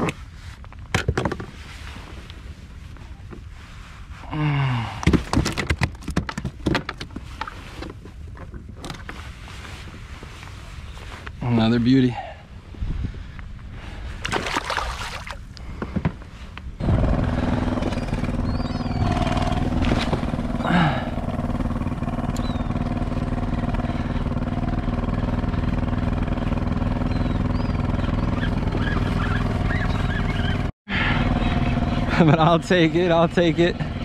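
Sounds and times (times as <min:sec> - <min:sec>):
engine humming steadily: 0:00.0 - 0:34.0.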